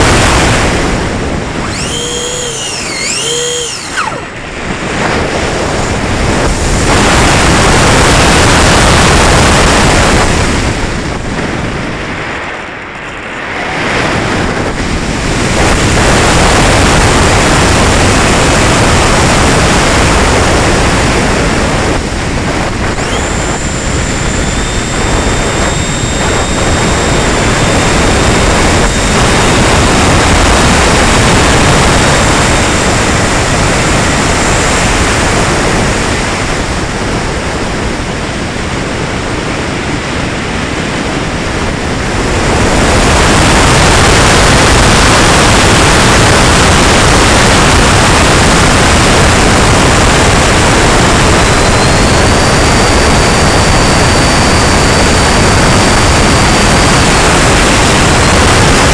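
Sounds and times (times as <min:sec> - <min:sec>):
faint high whine: 0:00.0 - 0:38.1, 0:39.2 - 0:58.9
rushing airflow: 0:00.0 - 0:58.9.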